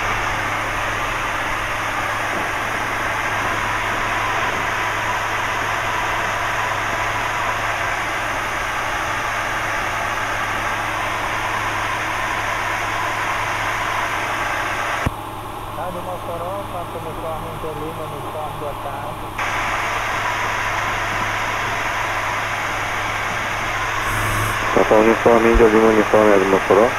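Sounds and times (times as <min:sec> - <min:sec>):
light aircraft engine drone: 0:00.0 - 0:26.9
broad rushing noise: 0:23.7 - 0:25.8.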